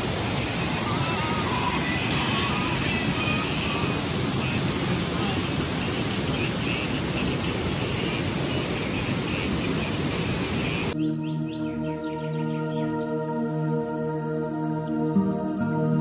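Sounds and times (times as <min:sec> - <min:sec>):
waterfall rushing water roar: 0:00.0 - 0:11.0.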